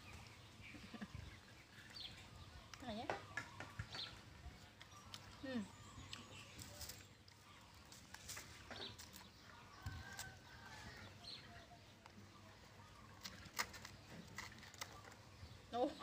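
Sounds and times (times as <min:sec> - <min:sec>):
distant bird calls: 0:00.0 - 0:16.0.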